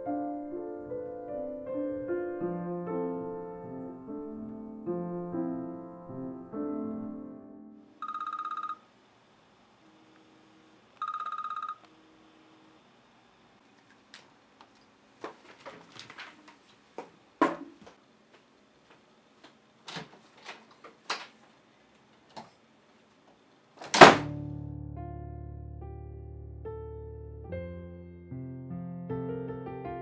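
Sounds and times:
soft piano music: 0:00.0 - 0:07.9, 0:24.2 - 0:30.0
phone alarm pulsing beep: 0:08.0 - 0:08.8, 0:11.0 - 0:11.9
knocks and rustles of movement: 0:13.8 - 0:24.2.

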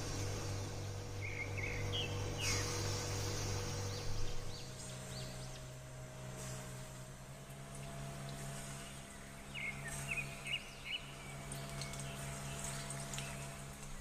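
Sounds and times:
steady low hum: 0:00.0 - 0:14.0
faint bird-like chirps: 0:01.2 - 0:03.0.

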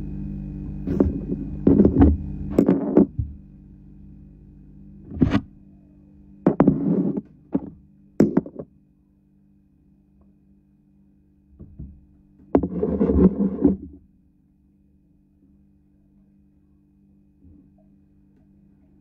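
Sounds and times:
steady low hum: 0:00.0 - 0:19.0
knocks and thuds: 0:00.9 - 0:03.4.

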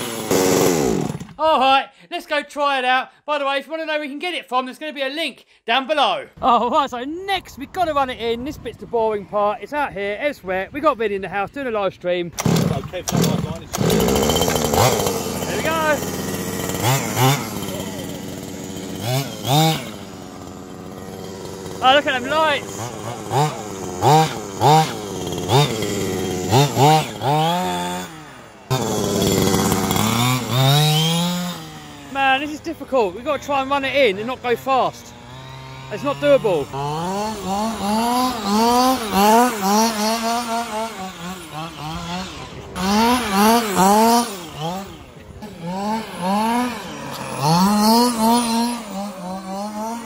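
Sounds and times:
two-stroke engine revving: 0:00.0 - 0:01.4, 0:12.4 - 0:50.0.

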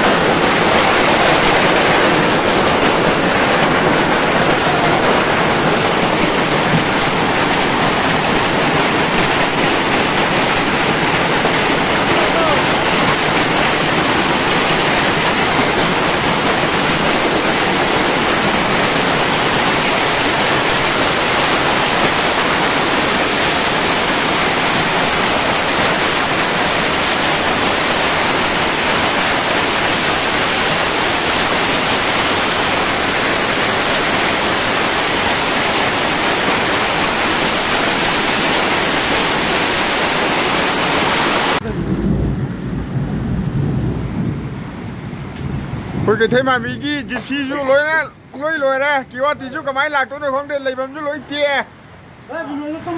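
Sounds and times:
hail and rain pelting down: 0:00.0 - 0:52.9.

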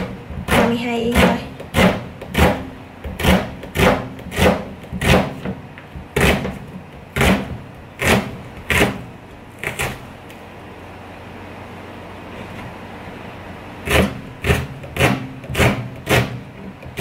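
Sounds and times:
knife slicing onion on cutting board: 0:00.0 - 0:10.0, 0:13.8 - 0:17.0.

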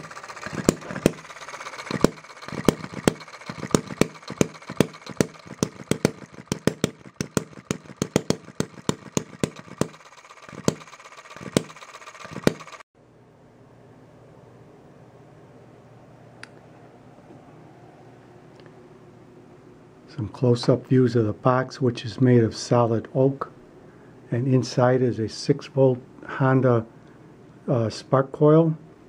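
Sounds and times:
engine firing pops: 0:00.0 - 0:12.8
light mechanical clatter: 0:00.0 - 0:12.8.

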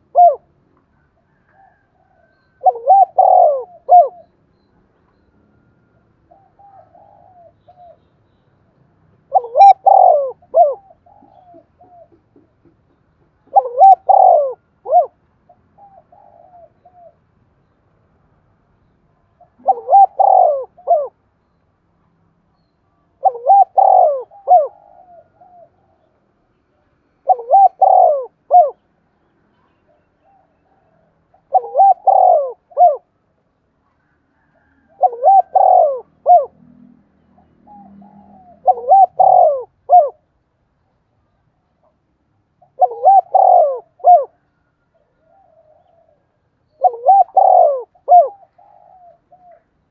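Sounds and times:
dove cooing: 0:00.0 - 0:00.6, 0:01.2 - 0:04.4, 0:06.2 - 0:08.0, 0:09.2 - 0:12.8, 0:13.4 - 0:17.2, 0:19.3 - 0:21.2, 0:23.2 - 0:26.2, 0:27.2 - 0:28.8, 0:29.8 - 0:33.1, 0:34.1 - 0:40.3, 0:42.6 - 0:49.8.

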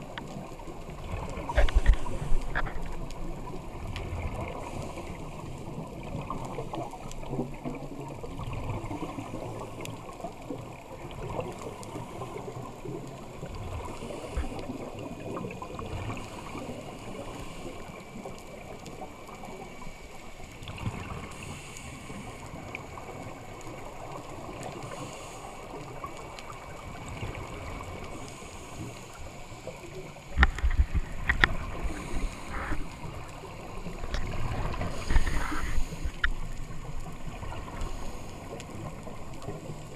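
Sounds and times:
muffled underwater rumble and hiss: 0:00.0 - 0:39.9
bubbling of exhaled breath: 0:01.0 - 0:05.5, 0:11.2 - 0:18.0, 0:30.3 - 0:39.9.

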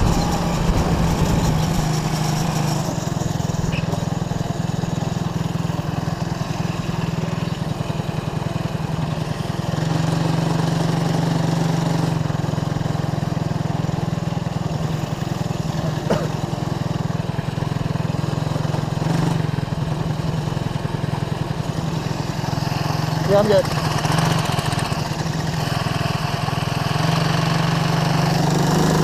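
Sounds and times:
go-kart engine running: 0:00.0 - 0:29.0.

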